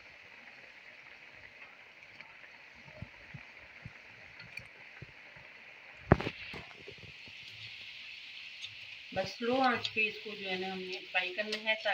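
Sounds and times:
frying sizzle with pops: 0.0s - 11.9s.

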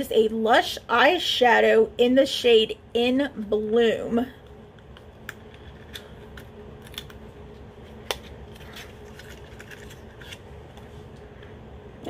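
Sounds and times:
package rustling and scraping: 5.4s - 11.2s.

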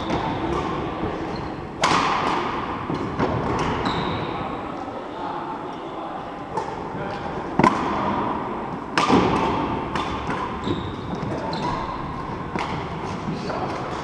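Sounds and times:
rackets striking shuttlecock: 1.8s - 3.9s, 8.9s - 14.0s.

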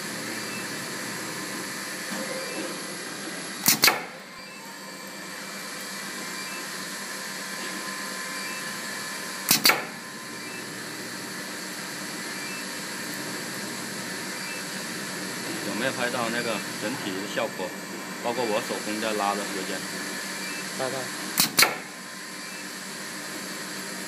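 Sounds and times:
pneumatic machine clacks: 3.6s - 4.2s, 9.5s - 10.0s, 21.4s - 21.9s.

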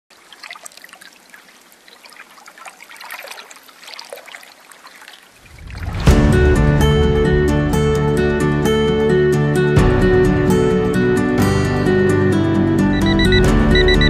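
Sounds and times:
faint trickling water: 0.1s - 6.1s
sharp hit: 5.7s - 8.7s.

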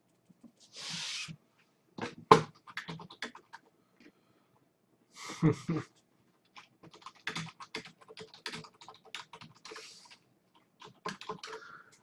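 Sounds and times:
keyboard typing: 2.3s - 3.7s, 6.4s - 12.0s.

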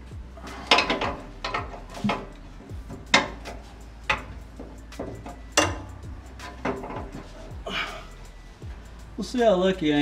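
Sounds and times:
hand tools clinking on metal: 0.5s - 7.5s.

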